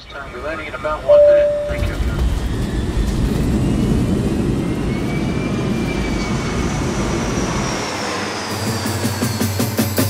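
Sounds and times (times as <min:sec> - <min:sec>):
jet airliner cabin rushing noise: 0:01.2 - 0:04.9.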